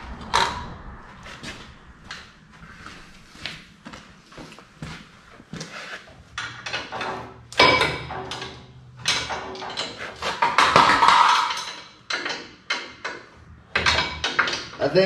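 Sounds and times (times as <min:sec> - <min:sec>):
metal tools clanking on steel frame: 0:06.3 - 0:15.0.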